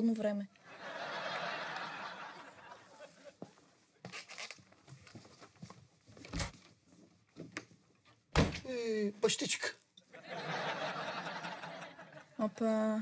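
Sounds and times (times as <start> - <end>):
audience laughter: 0.6 - 3.5, 10.1 - 12.5
footsteps on floor: 3.4 - 6.3.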